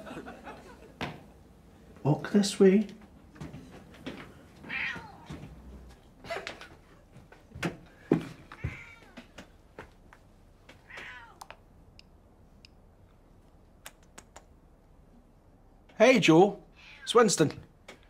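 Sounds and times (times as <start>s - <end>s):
cat meowing: 4.6s - 5.4s, 8.5s - 9.2s, 10.8s - 11.5s, 16.8s - 17.1s.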